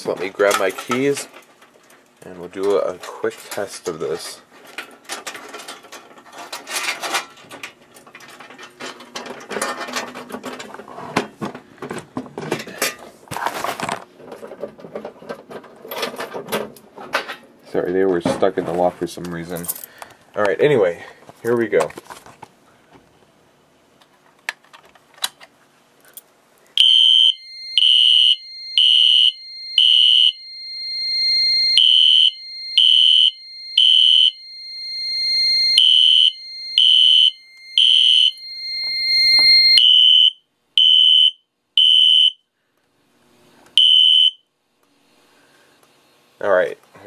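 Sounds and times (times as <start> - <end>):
fire alarm horn beeping: 26.8 - 42.4, 43.8 - 44.5
steady high alarm tone: 26.8 - 42.4, 43.8 - 44.4.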